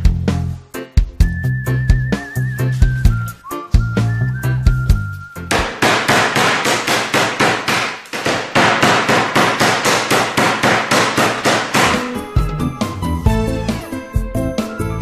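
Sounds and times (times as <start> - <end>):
meat mallet pounding meat: 5.5 - 12.2.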